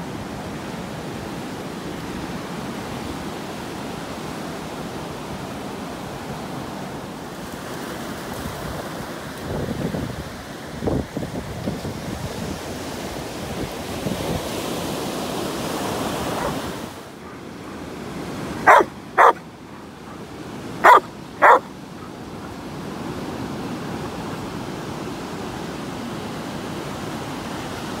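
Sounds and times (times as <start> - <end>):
surf washing onto beach: 0.0 - 28.0
dog barking: 16.3 - 17.8, 18.6 - 22.2.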